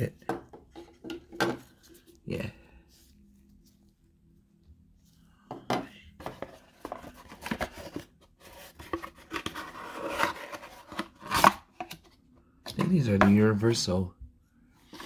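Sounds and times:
gloved hands handling cardboard box: 6.2 - 12.1.

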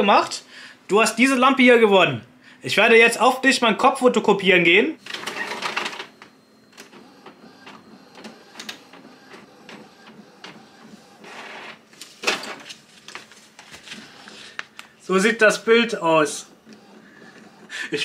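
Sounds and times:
printer clicking and whirring: 5.0 - 14.9, 16.2 - 18.0.

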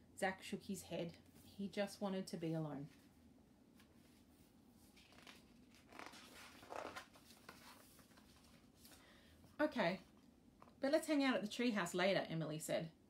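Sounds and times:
paper page turning: 4.9 - 9.0.

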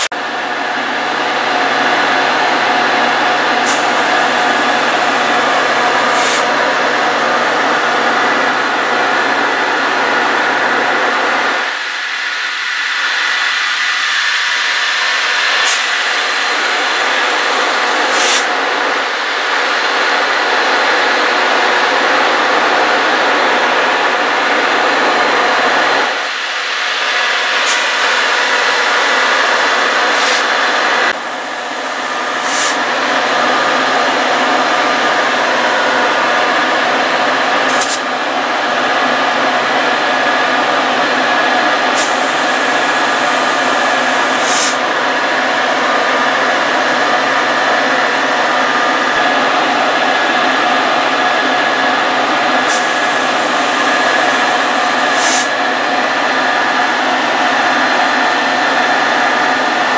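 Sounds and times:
diesel locomotive engine droning: 0.0 - 59.9
high hisses: 15.5 - 18.5.

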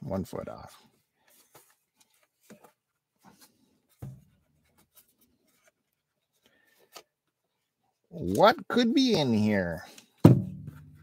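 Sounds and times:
dull thump: 10.2 - 11.0.

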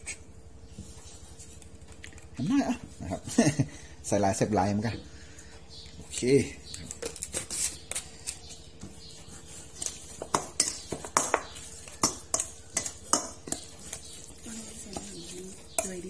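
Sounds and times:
spoon clinking and scraping steel bowl: 9.8 - 16.0.

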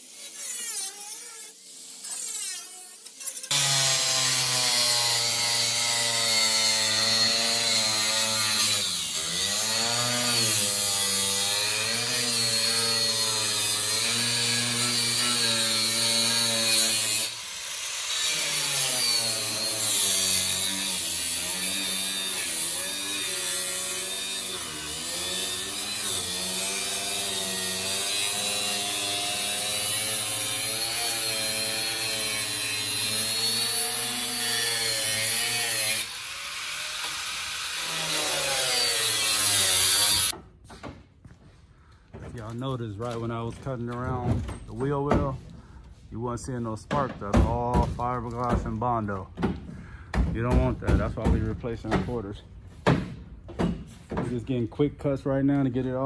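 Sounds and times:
cutoff grinder cutting: 0.0 - 40.3.

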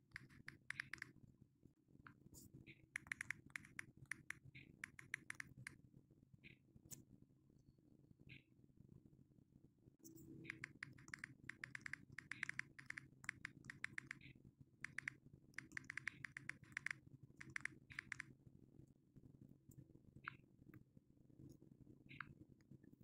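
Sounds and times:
phone keyboard taps: 3.0 - 5.7, 10.5 - 14.2, 14.9 - 18.2.

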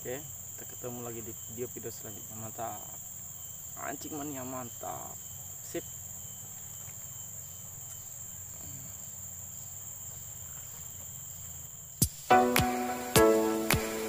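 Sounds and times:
insects chirring: 0.0 - 14.0
plucked-string music: 12.3 - 14.0.

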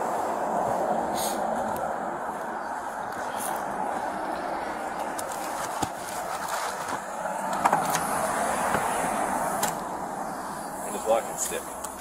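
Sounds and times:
street traffic hum: 0.0 - 12.0.

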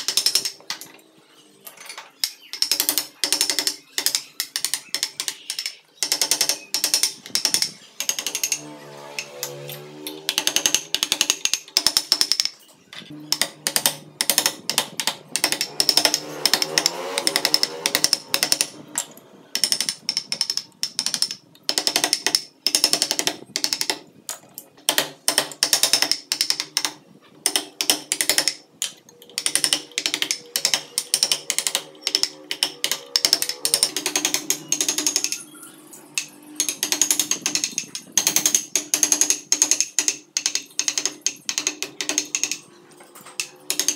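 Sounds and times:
chisel cutting wood: 13.3 - 18.9.

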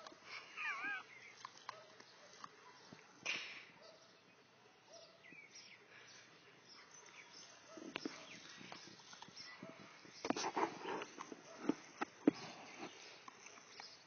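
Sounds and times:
dog whining: 0.6 - 1.1.

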